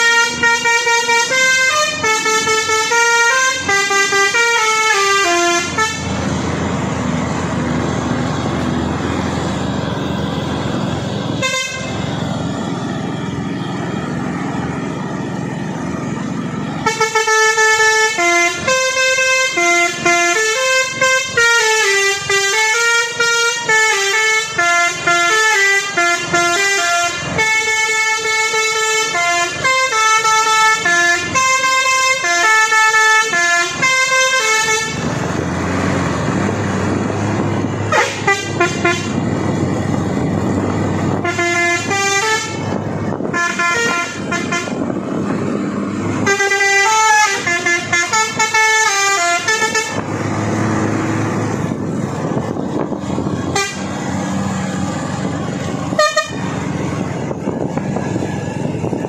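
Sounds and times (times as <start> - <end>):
musical air horn tune: 0.0 - 6.2, 11.4 - 12.1, 16.8 - 35.1, 37.9 - 39.2, 41.1 - 45.0, 46.2 - 50.0, 53.5 - 53.9, 55.9 - 56.5
diesel truck engine running: 0.0 - 59.0.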